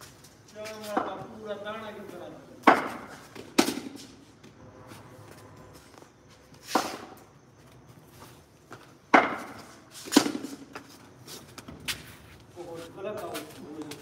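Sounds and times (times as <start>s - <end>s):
cricket bat hitting ball: 2.6s - 4.0s, 9.1s - 10.6s.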